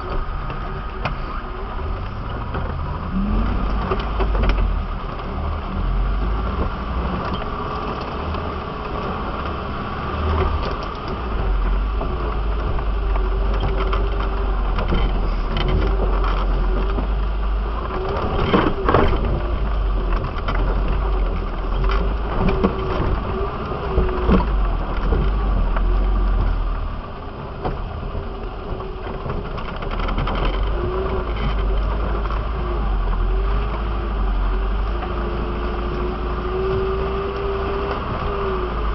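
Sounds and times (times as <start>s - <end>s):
body knocks and rattles: 0.0s - 38.9s
vehicle engine running low speed: 0.0s - 38.9s.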